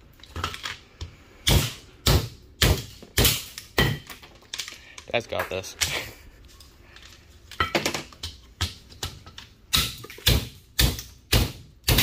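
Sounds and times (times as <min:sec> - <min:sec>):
hatchet striking metal motor: 0:09.7 - 0:12.0.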